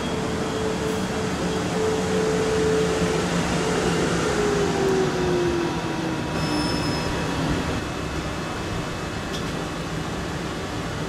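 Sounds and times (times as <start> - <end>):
train motor whine: 0.0 - 7.8
electric train rumbling over rails: 0.0 - 11.0.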